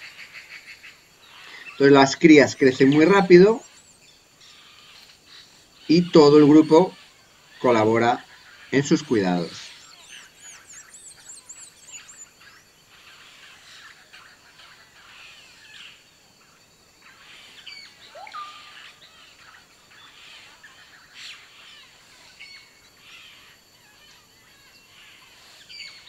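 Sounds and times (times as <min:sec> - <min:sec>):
high-pitched insect tone: 0:00.0 - 0:26.0
bird chirps and whistles: 0:09.5 - 0:12.4, 0:17.7 - 0:18.9.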